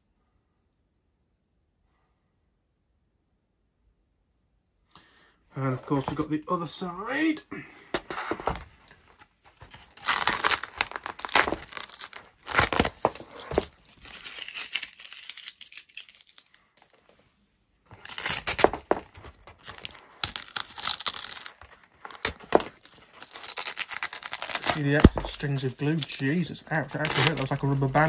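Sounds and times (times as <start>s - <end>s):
tape ripping off foam: 9.6s - 17.0s, 17.9s - 28.0s.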